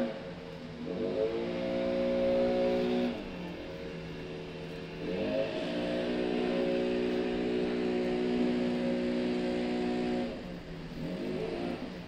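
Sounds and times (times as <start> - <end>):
leaf blower revving: 0.8 - 3.6, 4.2 - 12.0.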